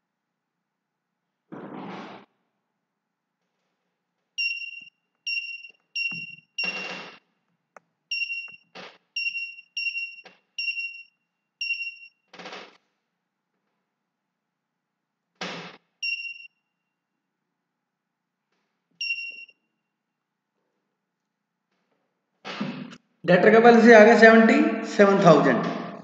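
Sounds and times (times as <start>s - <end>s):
high-pitched electronic beeps: 4.4s - 7.2s, 8.1s - 8.6s, 9.2s - 12.1s, 16.0s - 16.5s, 19.0s - 19.5s.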